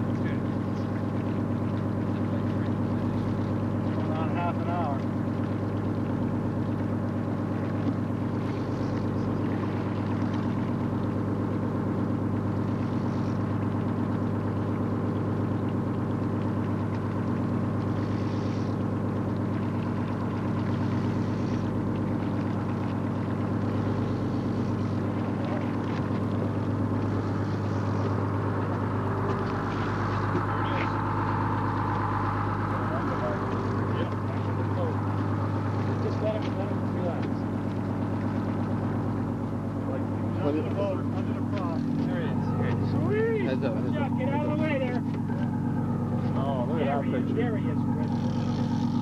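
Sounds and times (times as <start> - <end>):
boat engine droning: 0.0 - 49.0.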